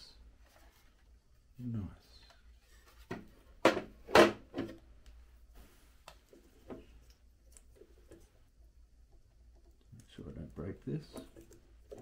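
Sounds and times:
plastic panel knocking and clattering: 0:03.1 - 0:04.8.

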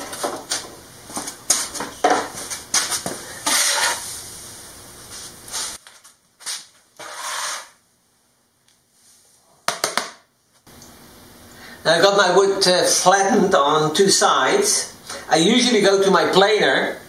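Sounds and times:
brush sweeping wood shavings: 0:07.0 - 0:07.7.

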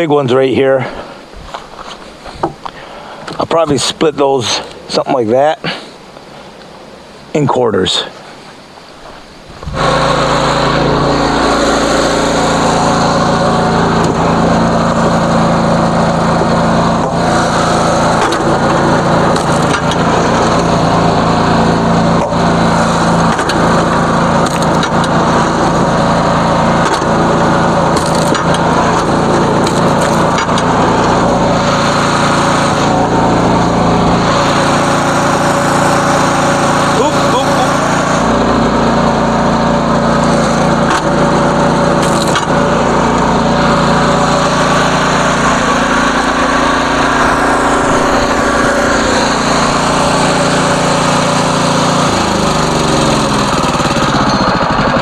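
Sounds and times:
small engine droning: 0:09.6 - 0:55.0
wood cracking and splintering: 0:24.4 - 0:25.2, 0:28.0 - 0:30.6, 0:42.0 - 0:42.6.

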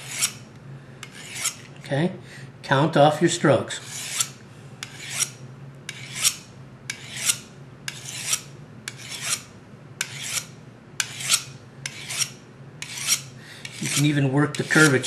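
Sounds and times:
sharpener scraping knife edge: 0:00.0 - 0:00.4, 0:01.0 - 0:01.7, 0:03.8 - 0:15.0.

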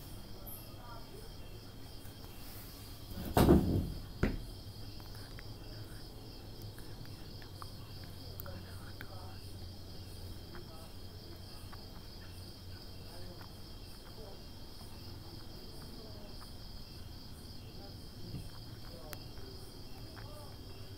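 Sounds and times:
continuous insect trill: 0:00.0 - 0:20.9
pulsing cricket chirp: 0:00.0 - 0:20.9.

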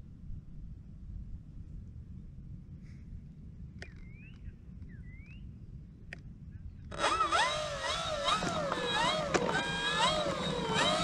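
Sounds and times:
wind rumbling on microphone: 0:00.0 - 0:11.0
electric motor and propeller whine: 0:06.9 - 0:11.0.

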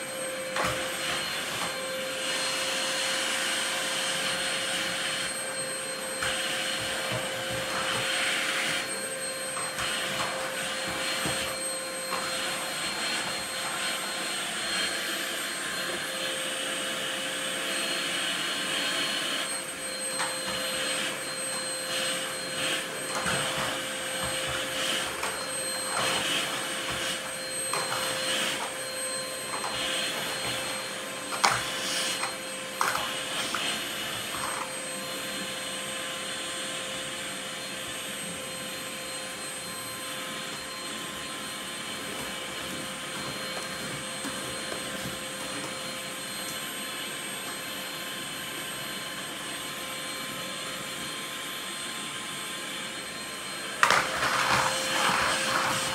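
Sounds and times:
vacuum cleaner running: 0:00.0 - 0:55.9
vacuum nozzle scraping tiles: 0:00.2 - 0:37.0, 0:53.5 - 0:55.9.

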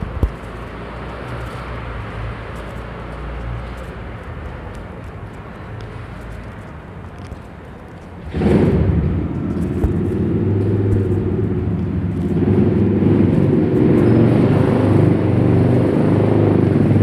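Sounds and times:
footsteps on concrete: 0:00.0 - 0:14.0
city traffic rumble: 0:00.0 - 0:17.0.

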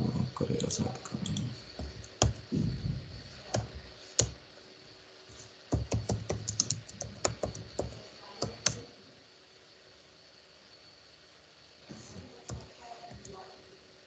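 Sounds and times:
keyboard typing: 0:00.5 - 0:02.5, 0:03.4 - 0:04.4, 0:05.7 - 0:08.8.

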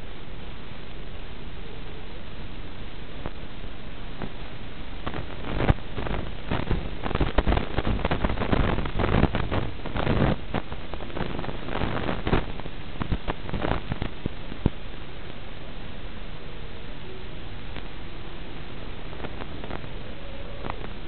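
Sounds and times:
radio static hiss: 0:00.0 - 0:21.0
irregular crackling: 0:19.0 - 0:21.0.

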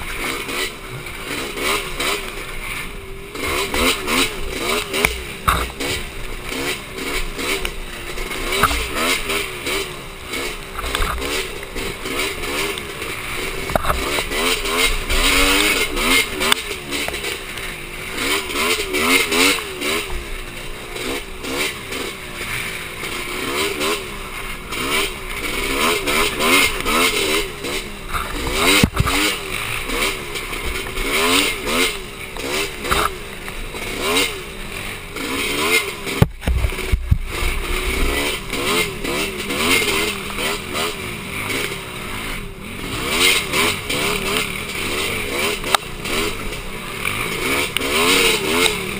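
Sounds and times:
atv engine revving: 0:00.0 - 0:48.9
sharp knocks from rough ground: 0:03.7 - 0:06.6, 0:08.4 - 0:09.2, 0:28.1 - 0:29.4, 0:36.1 - 0:38.8.

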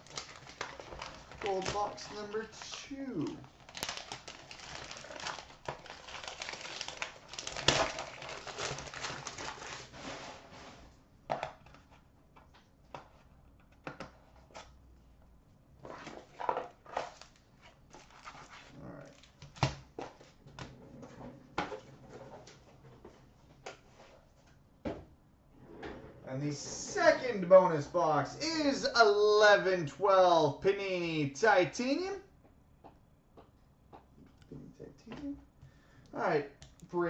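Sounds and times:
wrapping paper crinkling and tearing: 0:00.0 - 0:10.5, 0:17.0 - 0:19.4
paper rustling: 0:00.0 - 0:10.8.

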